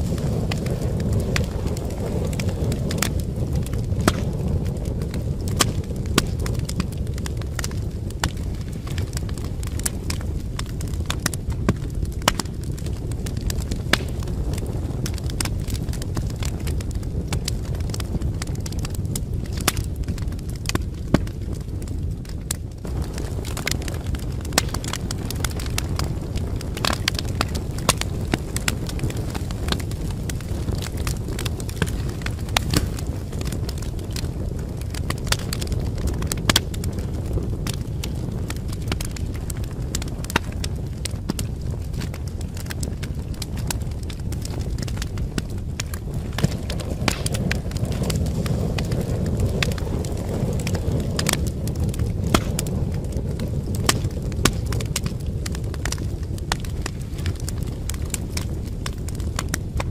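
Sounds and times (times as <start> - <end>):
wood fire crackling: 0.0 - 59.9.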